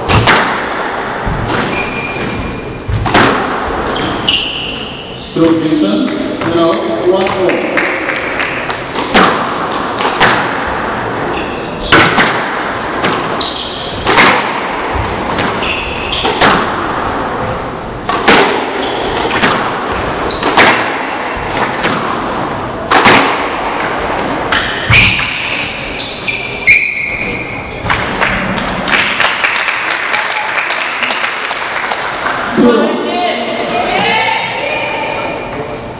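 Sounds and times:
squash ball cracking off walls: 0.0s - 4.0s, 7.2s - 10.9s, 11.8s - 17.2s, 18.0s - 25.5s
shoes squeaking on wooden floor: 1.6s - 3.0s, 3.8s - 5.0s, 11.1s - 14.0s, 15.3s - 16.5s, 18.7s - 19.4s, 24.9s - 27.8s.

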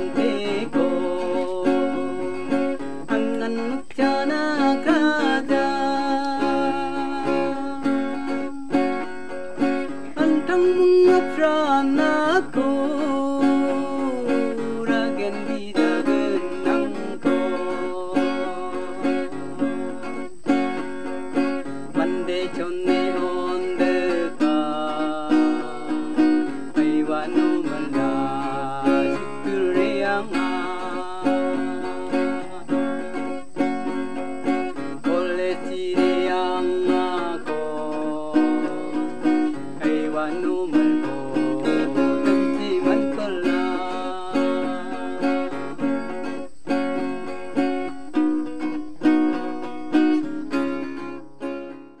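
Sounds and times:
man singing: 0.0s - 48.3s
acoustic guitar strumming: 0.0s - 52.0s.

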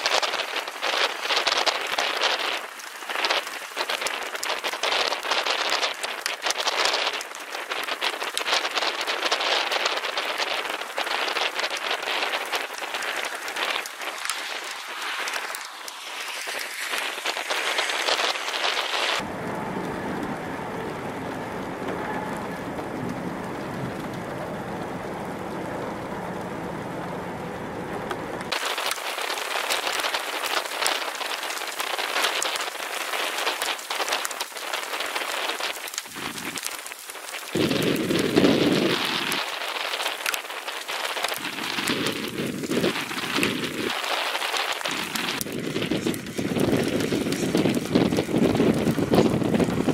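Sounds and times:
rain hiss: 0.0s - 49.9s
deep steady rumbling: 19.2s - 28.6s, 44.9s - 49.9s.

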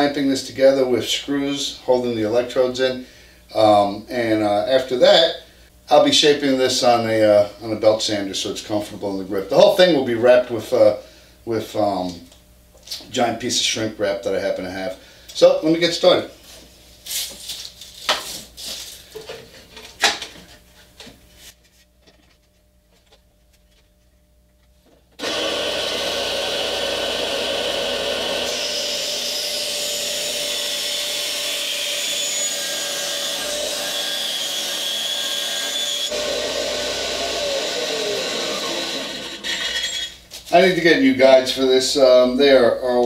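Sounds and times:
bandsaw cutting wood: 25.2s - 40.1s.

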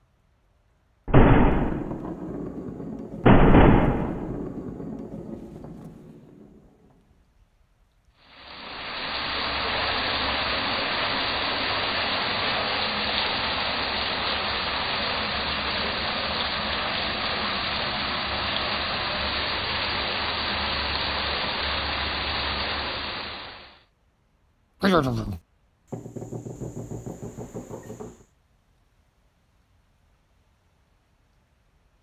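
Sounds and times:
heavy rain pouring: 8.3s - 23.8s.

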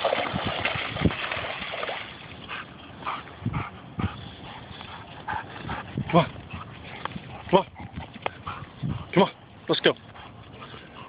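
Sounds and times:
dog splashing through water: 0.0s - 2.4s.

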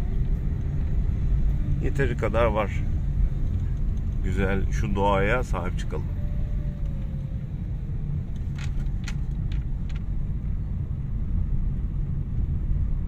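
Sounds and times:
engine and tyres rumbling: 0.0s - 13.0s.

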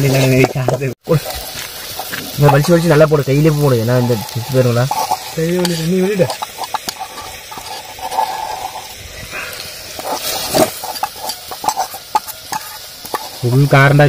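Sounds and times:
wood fire crackling: 0.0s - 14.0s
curry simmering in a pot: 0.1s - 14.0s
person speaking: 2.2s - 6.5s.

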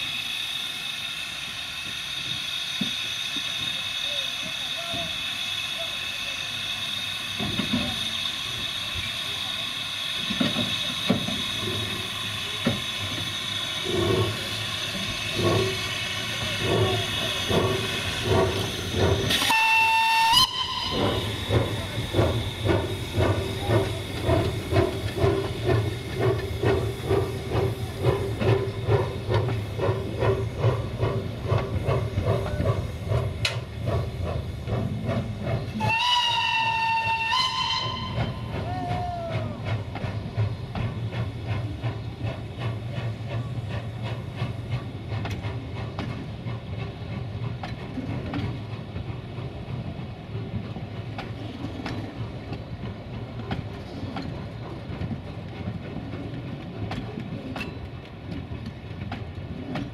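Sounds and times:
steam hissing: 0.0s - 59.9s
steam locomotive chuffing: 0.0s - 59.9s
steam whistle blast: 19.3s - 21.4s, 35.8s - 38.8s.

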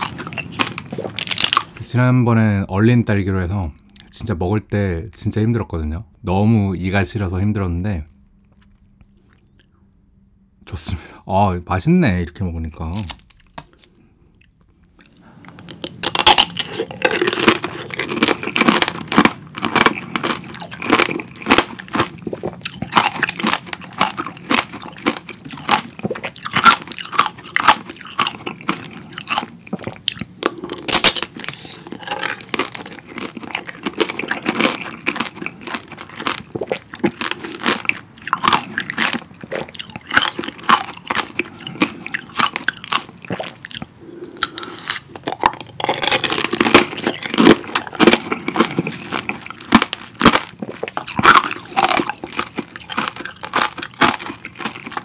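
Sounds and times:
candy shell crunching while chewing: 0.0s - 1.9s, 12.9s - 55.0s.

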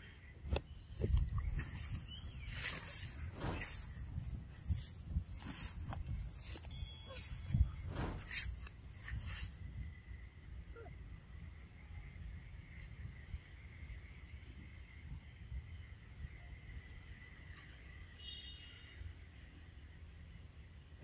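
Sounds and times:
high-pitched insect drone: 0.0s - 21.0s
low uneven rumble: 0.9s - 9.3s.

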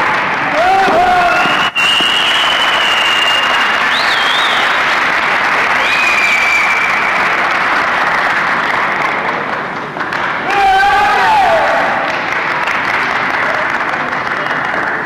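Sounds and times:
crowd applauding: 0.0s - 15.0s
loud whistling: 1.0s - 5.0s, 5.8s - 7.2s.

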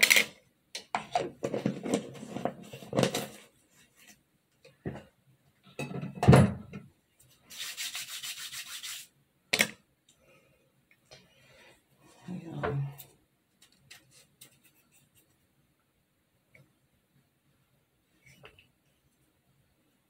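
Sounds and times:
hands rubbing cream: 7.3s - 9.1s.

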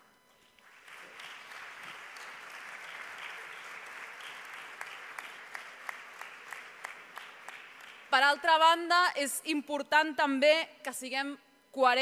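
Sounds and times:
audience applause: 0.6s - 8.1s
single hand claps: 0.9s - 8.1s.

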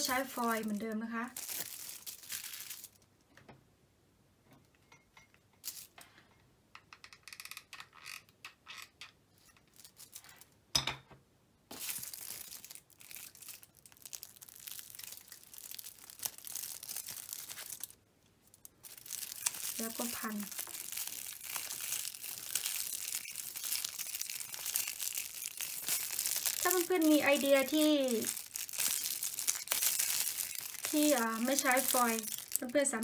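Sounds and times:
kitchen foil crinkling: 0.0s - 3.1s, 9.7s - 10.5s, 11.7s - 33.0s.

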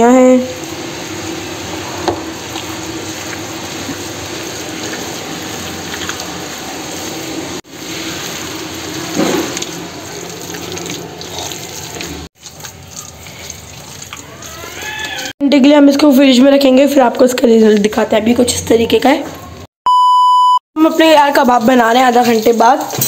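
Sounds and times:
hand kneading wet mince: 2.4s - 15.4s.

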